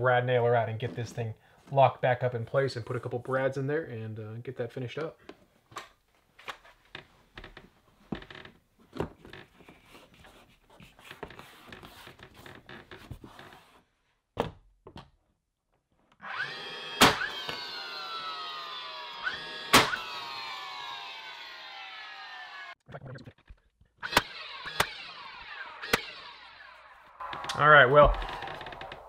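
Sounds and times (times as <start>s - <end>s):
nailer motor whine: 16.2s - 22.8s, 24.0s - 29.0s
nailer firing cracks: 17.0s - 17.6s, 19.7s - 20.1s, 24.0s - 26.4s.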